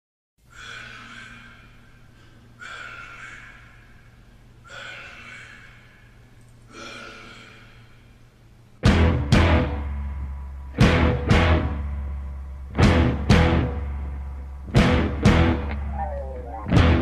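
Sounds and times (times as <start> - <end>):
low steady hum: 0.4 - 17.0
breathy swells: 0.5 - 8.6.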